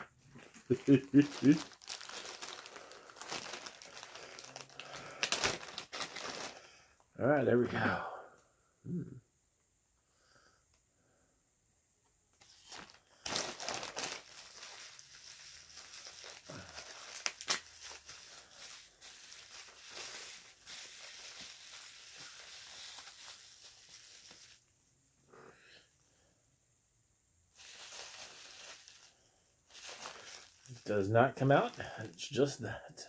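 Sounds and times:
plastic packaging crinkling: 0.0 - 6.7, 12.4 - 24.7, 27.6 - 32.2.

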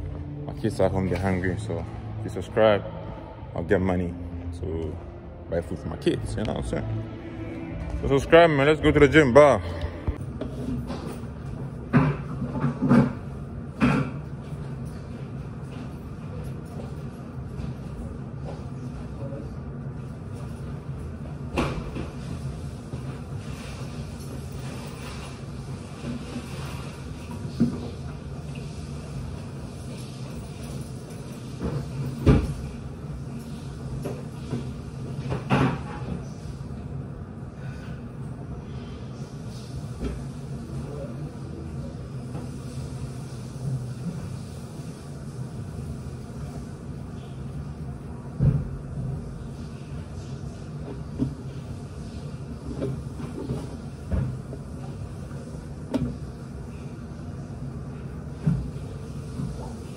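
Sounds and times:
steady low rumble: 0.0 - 10.4
steady low hum: 0.0 - 59.9.

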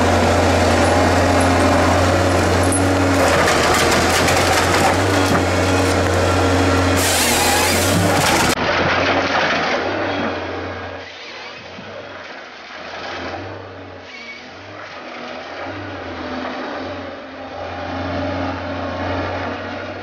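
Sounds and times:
diesel engine working under load: 0.0 - 20.0
hydraulics whining: 0.0 - 20.0.

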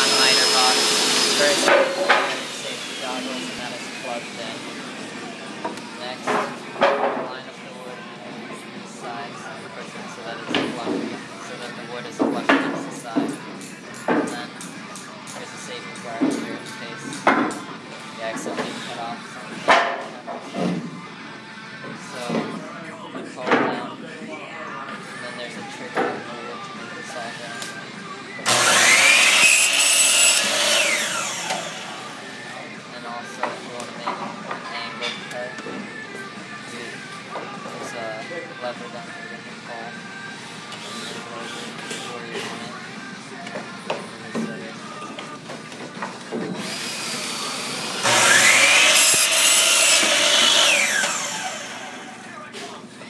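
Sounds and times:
saw motor whine: 0.0 - 4.8, 28.5 - 32.5, 46.6 - 52.3
miter saw cutting wood: 0.0 - 5.0, 28.4 - 32.5, 46.6 - 52.4.

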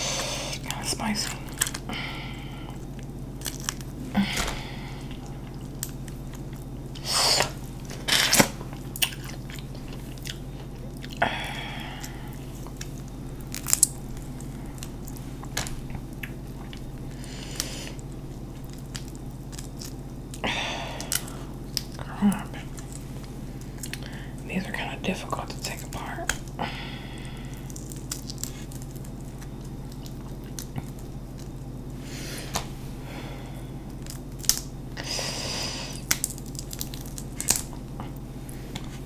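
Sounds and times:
chewing: 2.7 - 24.4, 27.2 - 32.6.

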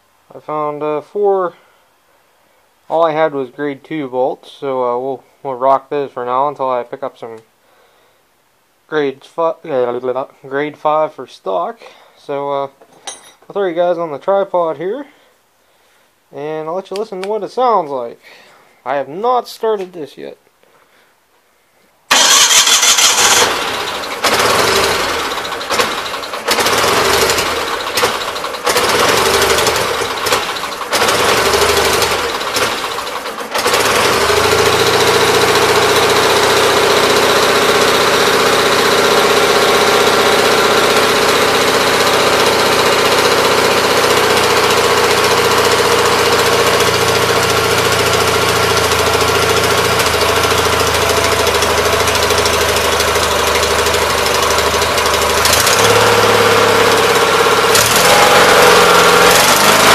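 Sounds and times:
small engine starting and running: 22.1 - 59.9.

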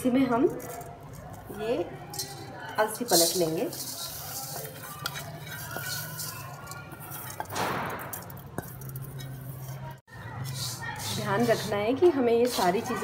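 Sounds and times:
seeds pouring into a pan: 0.4 - 9.8.

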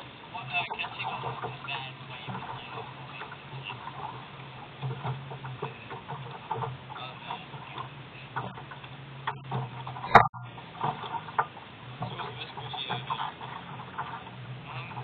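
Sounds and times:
boat engine idling: 0.0 - 15.0
water slapping against hull: 0.0 - 15.0.

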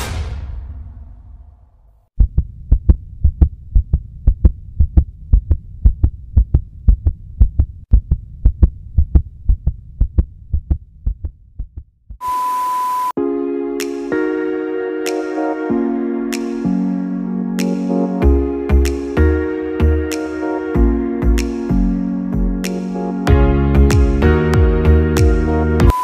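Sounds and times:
heartbeat double thump: 2.2 - 12.2
steady beep: 12.2 - 13.2
synthesizer music: 13.2 - 26.0.

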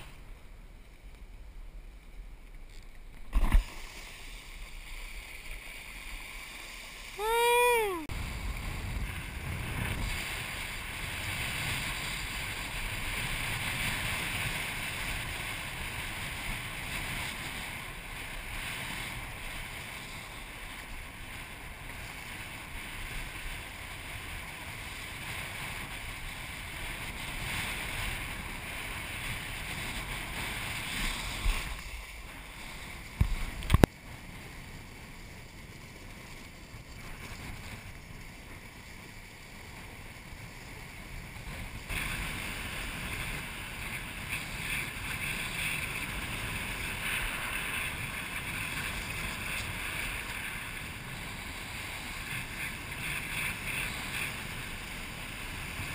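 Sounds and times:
rushing water: 3.1 - 24.3
wind noise: 6.6 - 55.9.

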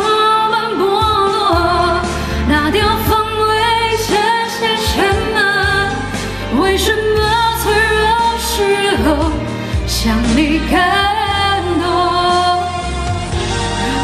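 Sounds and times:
backing track with bass: 0.0 - 14.0
woman singing pop ballad: 0.0 - 14.0.

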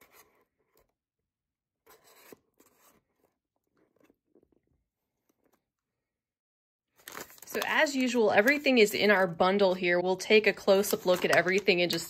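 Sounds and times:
small tool scraping cardboard: 0.0 - 1.0, 1.8 - 5.7.

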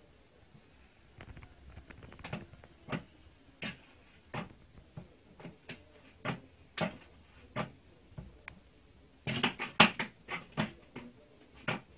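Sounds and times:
plastic bucket knocking and rattling: 9.2 - 11.9.

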